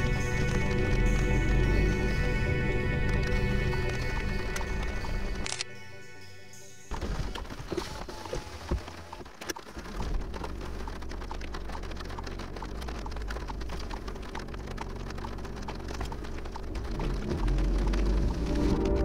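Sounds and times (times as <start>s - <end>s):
raindrops tapping on car windshield: 0.0s - 2.2s, 6.9s - 19.0s
low rumble: 10.0s - 19.0s.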